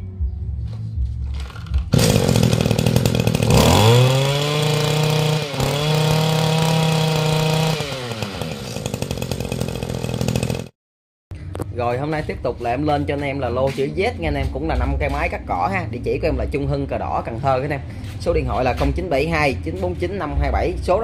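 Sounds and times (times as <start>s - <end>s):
brush cutter engine revving: 1.4s - 10.7s.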